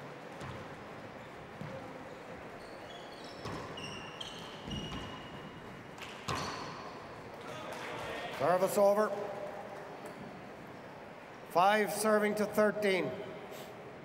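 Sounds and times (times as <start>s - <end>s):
sneakers squeaking on court: 0.4s - 7.1s.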